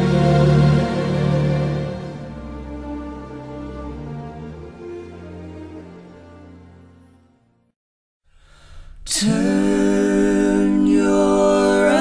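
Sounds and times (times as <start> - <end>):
background music with held chords: 0.0 - 7.7.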